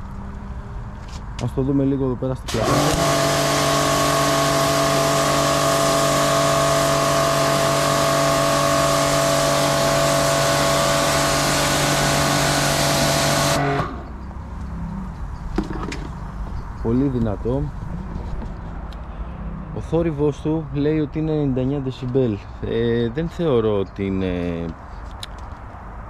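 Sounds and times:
high-pressure water jet hissing: 0:02.5 - 0:14.0
pressure washer motor hum: 0:02.5 - 0:14.2.

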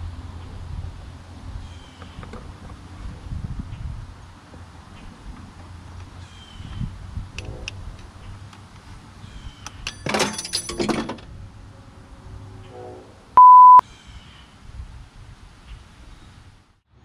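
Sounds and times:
wrench clattering down metal: 0:09.8 - 0:11.2
censor bleep: 0:13.4 - 0:13.8.

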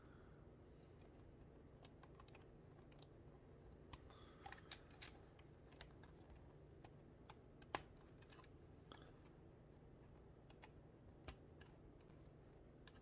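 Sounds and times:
plastic piece snapping: 0:03.9 - 0:08.5.

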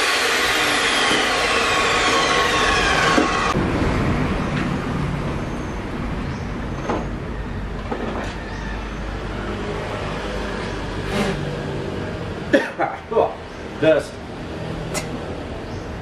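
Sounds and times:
rushing machine noise: 0:00.0 - 0:06.0.

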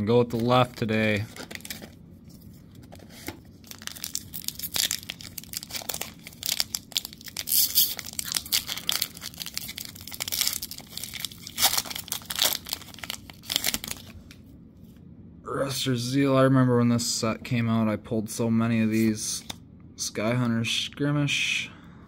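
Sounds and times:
foil wrapper tearing and crinkling: 0:00.3 - 0:02.0, 0:03.2 - 0:14.2.

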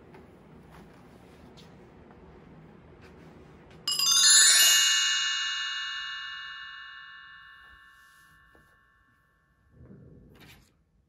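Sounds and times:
bright chime ringing: 0:03.9 - 0:09.3.

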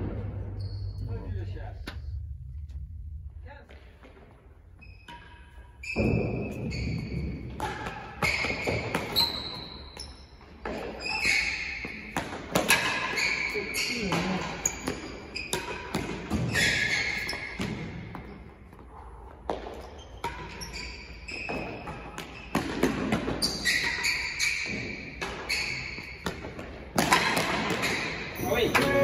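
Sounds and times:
ball bouncing off floor and walls: 0:03.7 - 0:13.4, 0:14.0 - 0:29.0
rackets striking ball: 0:05.0 - 0:09.4, 0:10.6 - 0:13.4, 0:21.4 - 0:29.0.

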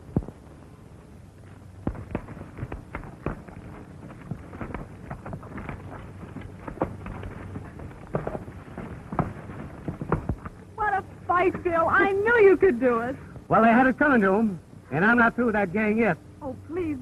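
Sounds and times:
hooves on rocky ground: 0:01.4 - 0:12.0.

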